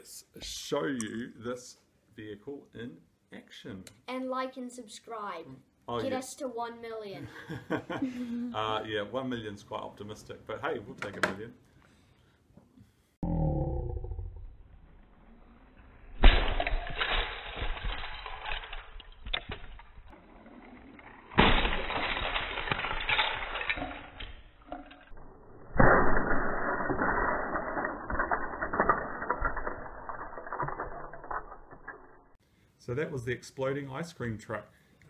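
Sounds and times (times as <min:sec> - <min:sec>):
toy truck crashing apart: 0:16.1 - 0:32.4
plastic bricks clattering on floor: 0:16.2 - 0:25.1, 0:26.6 - 0:32.4.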